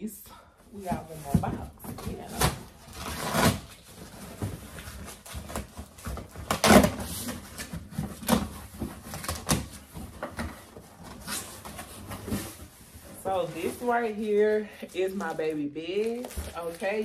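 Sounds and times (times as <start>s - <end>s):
cardboard scraping and knocking: 0.8s - 14.0s.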